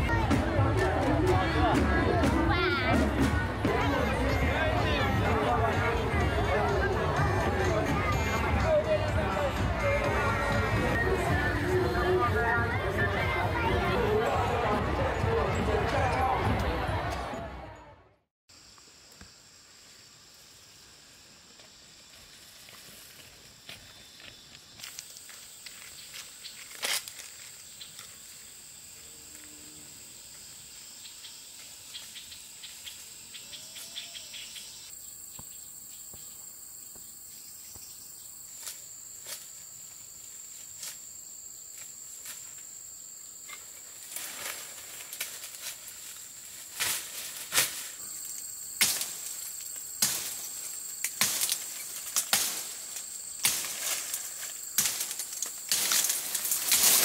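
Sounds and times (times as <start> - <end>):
knife chopping into branch: 48.8 - 49.4, 50.0 - 52.8, 53.4 - 54.1, 54.8 - 57.0.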